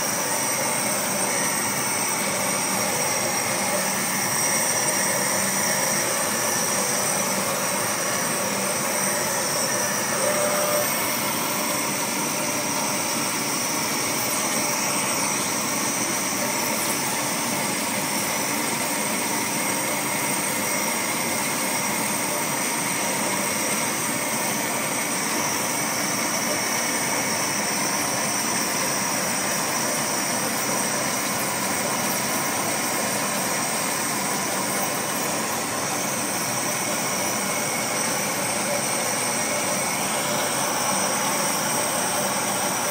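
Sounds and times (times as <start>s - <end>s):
laser cutter whirring and hissing: 0.0s - 42.9s.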